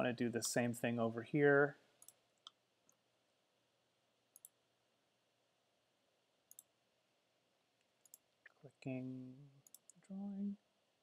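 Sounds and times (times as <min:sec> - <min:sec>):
faint computer mouse clicks: 0:04.3 - 0:04.6, 0:06.5 - 0:06.7, 0:07.8 - 0:08.3.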